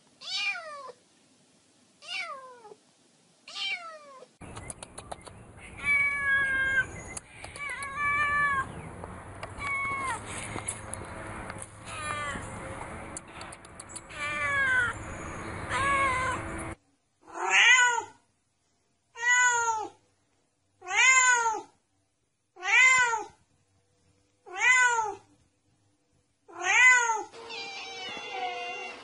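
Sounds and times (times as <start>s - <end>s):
background noise: 0.0s - 29.0s
cat meowing: 0.2s - 1.0s, 2.0s - 2.8s, 3.5s - 4.3s, 5.8s - 6.9s, 7.5s - 8.7s, 9.6s - 10.2s, 11.8s - 12.5s, 14.0s - 15.0s, 15.7s - 16.4s, 17.3s - 18.2s, 19.2s - 20.0s, 20.8s - 21.7s, 22.6s - 23.4s, 24.4s - 25.3s, 26.5s - 29.0s.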